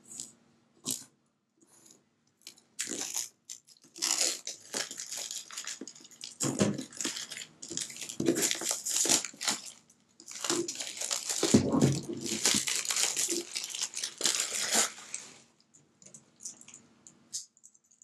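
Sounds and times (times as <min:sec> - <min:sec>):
plastic wrap crinkling: 0:02.4 - 0:15.4
knife slitting plastic wrap: 0:03.9 - 0:15.2.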